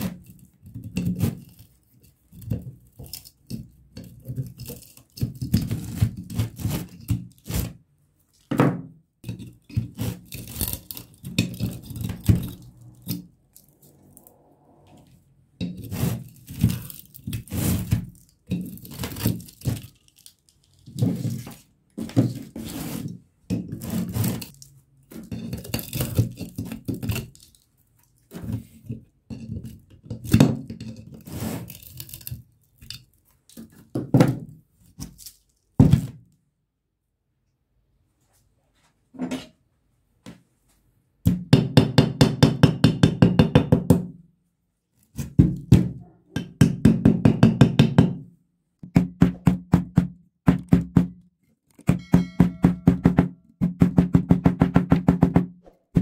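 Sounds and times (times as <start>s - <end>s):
copper wire tearing and scraping: 9.7s - 14.3s, 15.0s - 21.7s, 23.8s - 27.6s, 31.1s - 33.7s.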